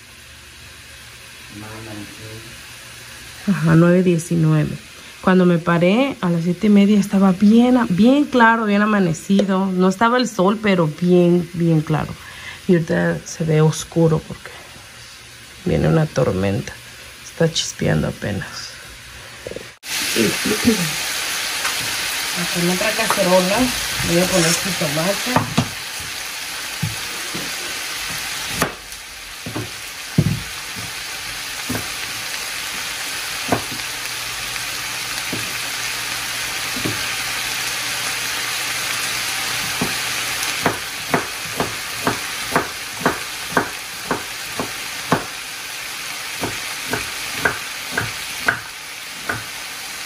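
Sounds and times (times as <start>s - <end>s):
tomatoes sizzling in a frying pan: 0.0s - 50.0s
knife chopping on wooden board: 25.4s - 25.8s, 28.1s - 28.8s, 29.4s - 31.0s, 31.7s - 32.0s, 33.5s - 33.8s, 39.8s - 40.0s, 40.6s - 45.4s, 46.4s - 49.5s.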